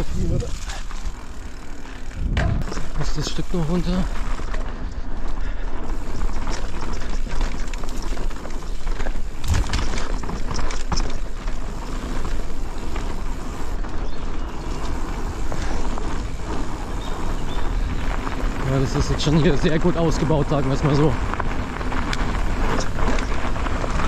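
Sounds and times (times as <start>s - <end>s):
bike rattling and clattering: 0.0s - 24.0s
tyre rumble on dirt: 5.9s - 24.0s.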